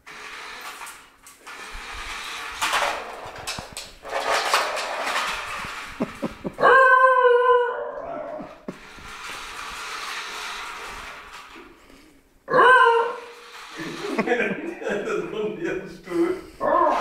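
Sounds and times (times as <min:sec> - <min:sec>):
dog yodel-like howl: 0:06.6 - 0:08.4, 0:12.5 - 0:13.2, 0:16.6 - 0:17.0.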